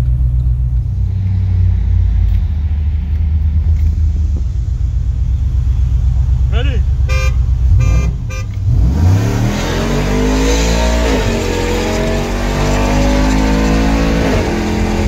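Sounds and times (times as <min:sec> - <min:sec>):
truck engine accelerating: 0:00.0 - 0:15.0.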